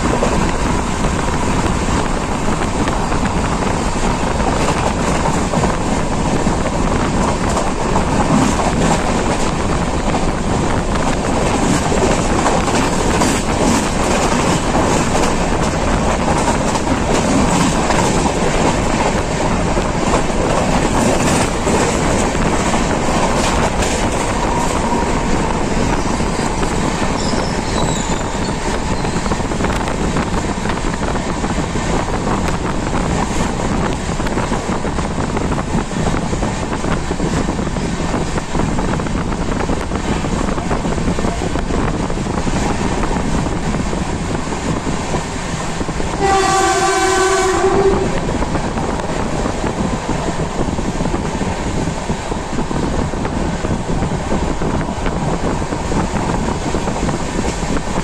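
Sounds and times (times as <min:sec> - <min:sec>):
rail joint ticks: 0:00.0 - 0:46.3
train wheels rumbling on rail: 0:00.0 - 0:58.0.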